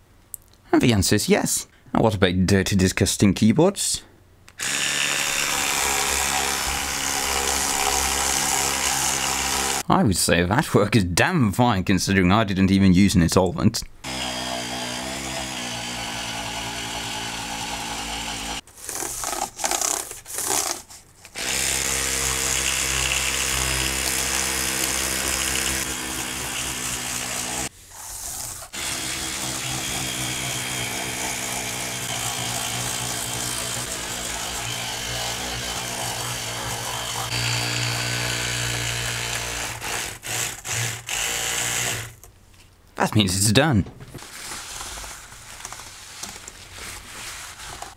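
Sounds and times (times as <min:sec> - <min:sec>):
electric toothbrush buzzing: 0:04.6 - 0:09.8, 0:14.0 - 0:18.6, 0:21.4 - 0:27.7, 0:28.7 - 0:42.2.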